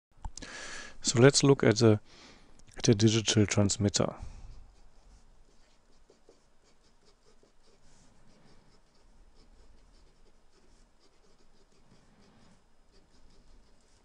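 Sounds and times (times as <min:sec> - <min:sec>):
marker scratching on paper: 0:04.7 - 0:14.0.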